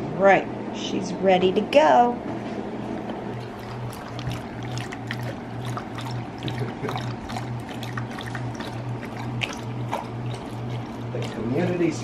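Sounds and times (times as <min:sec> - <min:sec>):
dogs lapping water: 0:03.0 - 0:12.0.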